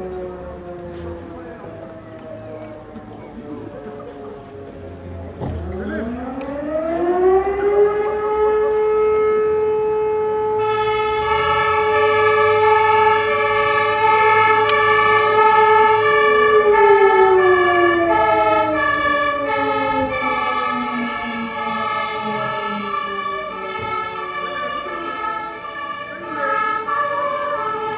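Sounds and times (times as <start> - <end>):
warning siren howling: 0.0 - 27.9
fire engine two-tone horn: 5.7 - 27.9.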